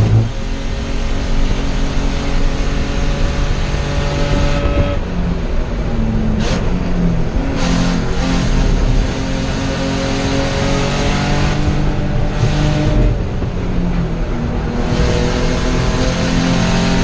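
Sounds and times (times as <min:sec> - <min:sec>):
race car engine revving: 0:00.0 - 0:17.0.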